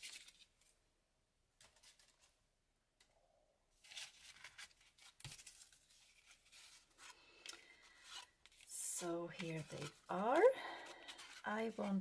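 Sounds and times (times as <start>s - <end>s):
cardboard rustling and scraping: 3.8s - 7.2s.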